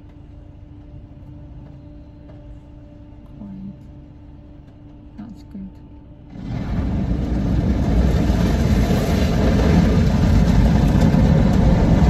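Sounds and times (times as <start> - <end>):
car wash machinery: 6.2 - 12.0.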